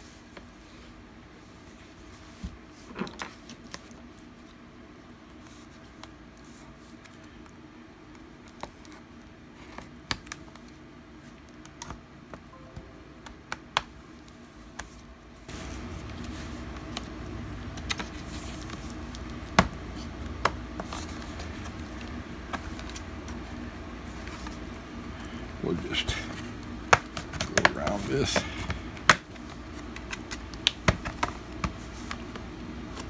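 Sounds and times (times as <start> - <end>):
steady low hum: 12.1 - 33.0.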